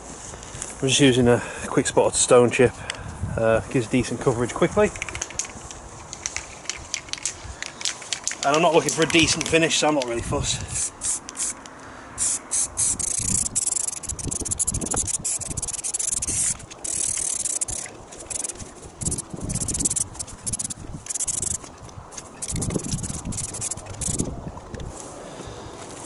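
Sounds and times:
aerosol spray hissing: 0:10.7 - 0:11.6, 0:12.2 - 0:21.6, 0:22.4 - 0:24.3.

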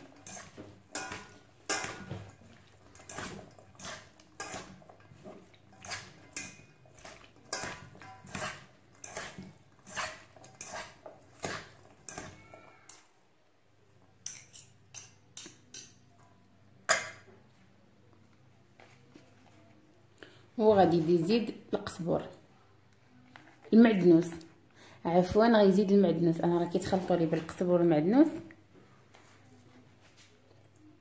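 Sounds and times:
forks clinking against metal bowl: 0:00.2 - 0:02.3, 0:02.9 - 0:04.8, 0:14.2 - 0:16.0.

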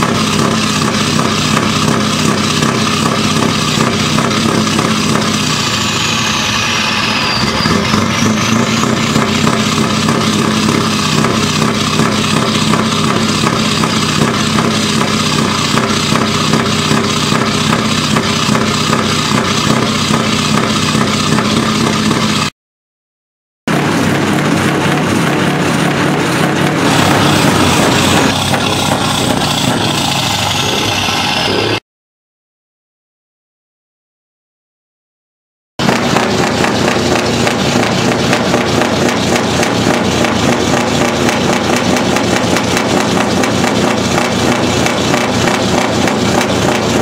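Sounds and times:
diesel truck engine idling: 0:00.0 - 0:22.5, 0:23.7 - 0:31.8, 0:35.8 - 0:47.0
faint high whistle: 0:05.6 - 0:09.1.

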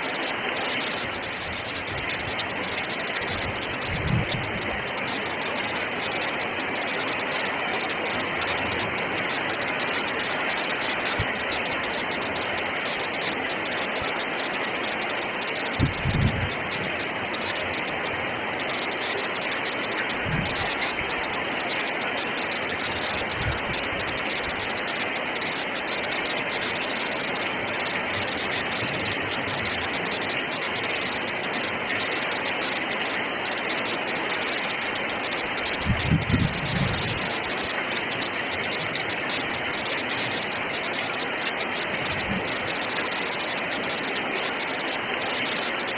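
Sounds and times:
heavy rain on roof tiles: 0:00.0 - 0:45.9.

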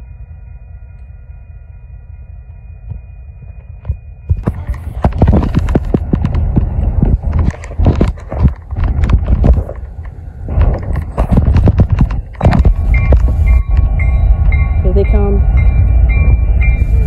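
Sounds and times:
diesel locomotives rumbling: 0:00.0 - 0:17.0
faint steady whine: 0:00.0 - 0:17.0
irregular thumps and knocks: 0:02.9 - 0:09.9, 0:10.5 - 0:14.6.

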